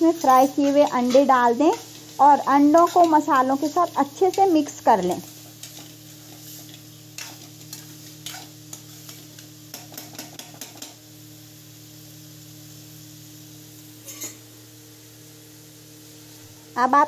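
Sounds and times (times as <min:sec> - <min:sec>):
spatula scraping metal pan: 0:00.0 - 0:08.8
sauce sizzling in a pan: 0:00.0 - 0:17.0.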